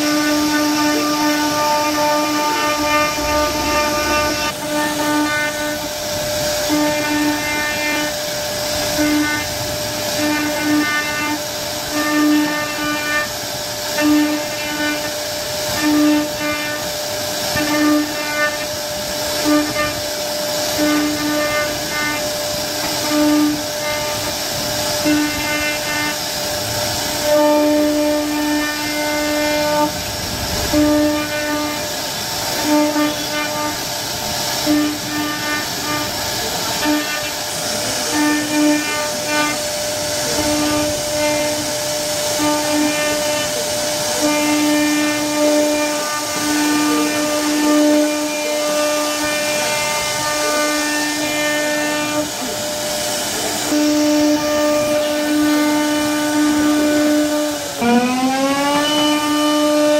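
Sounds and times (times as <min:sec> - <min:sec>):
bit cutting wood: 0:00.0 - 0:08.1, 0:54.1 - 0:59.9
axis motors whining: 0:00.0 - 0:10.6, 0:25.0 - 0:33.8, 0:34.7 - 0:43.7
router spindle whine: 0:00.0 - 0:59.9.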